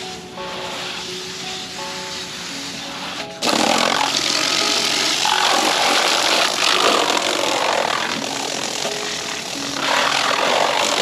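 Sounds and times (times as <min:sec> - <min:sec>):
hose water spraying on plastic: 0:00.0 - 0:11.0.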